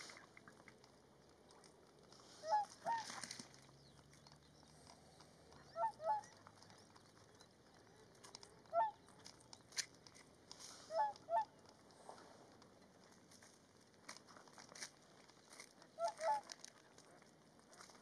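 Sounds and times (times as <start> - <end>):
swans honking: 2.2 - 3.7, 5.4 - 9.4, 10.6 - 11.8, 15.8 - 17.1.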